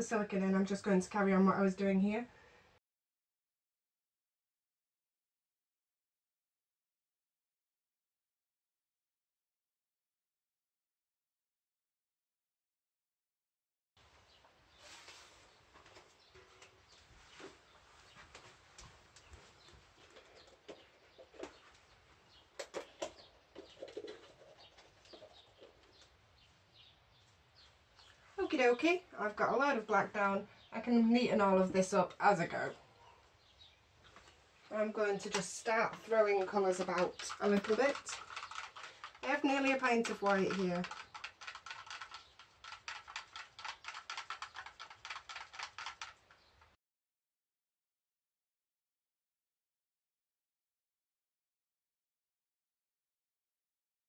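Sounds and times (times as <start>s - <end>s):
faint bird chirps: 32.8s - 34.4s
stick clicking against cup: 40.0s - 46.2s.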